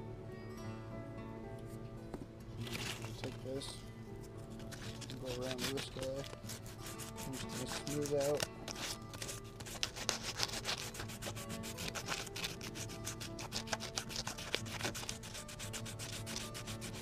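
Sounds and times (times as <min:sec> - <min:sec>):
sandpaper rubbing wood: 0:04.8 - 0:17.0.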